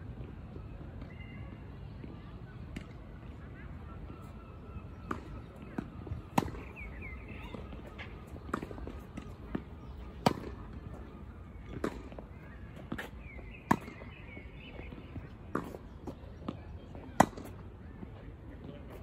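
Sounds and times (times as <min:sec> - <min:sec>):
tennis ball struck by rackets: 0:04.9 - 0:17.7
ball bouncing on hard court: 0:12.8 - 0:16.2.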